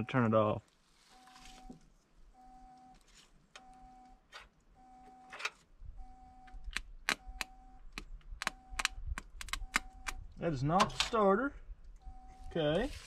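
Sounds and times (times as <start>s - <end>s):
electronic warning beeps: 0.0s - 0.5s, 1.1s - 1.8s, 2.4s - 3.0s, 3.6s - 4.2s, 4.8s - 7.9s, 8.5s - 10.6s, 12.0s - 12.9s.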